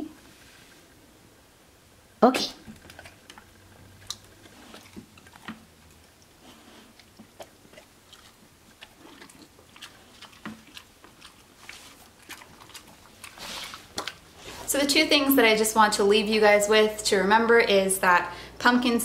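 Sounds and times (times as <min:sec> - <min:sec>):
dog chewing crunchy treat: 0:02.6 - 0:14.7.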